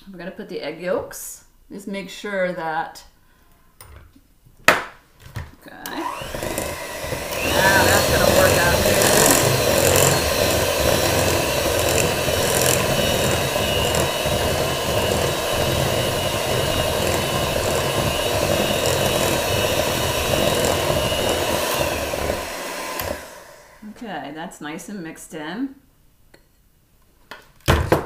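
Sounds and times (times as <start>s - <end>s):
electric hand mixer running: 5.9s - 23.9s.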